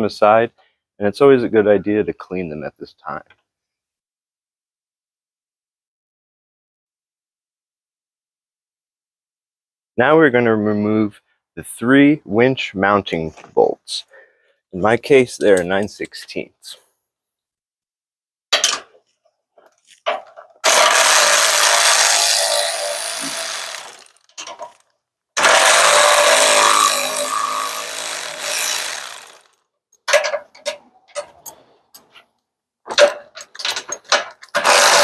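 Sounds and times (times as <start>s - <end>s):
cordless power tool running: 20.6s - 24.3s, 25.4s - 29.5s, 34.6s - 35.0s
short clicks and knocks: 30.0s - 32.3s.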